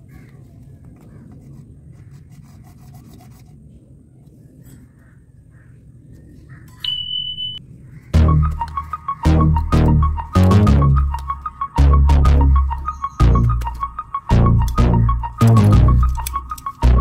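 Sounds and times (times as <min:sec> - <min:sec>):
short high beep: 0:06.8 - 0:07.6.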